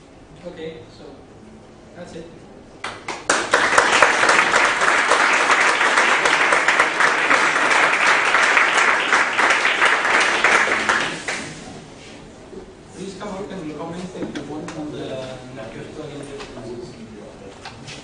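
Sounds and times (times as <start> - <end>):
audience applauding: 2.8 - 11.7.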